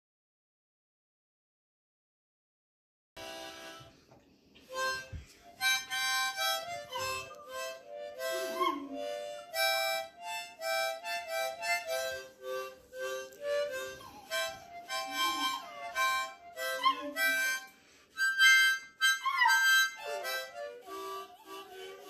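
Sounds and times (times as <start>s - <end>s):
harmonica playing chords: 3.2s - 4.0s, 4.7s - 22.0s
puppy howling: 8.2s - 9.2s, 16.6s - 17.4s, 19.0s - 22.0s.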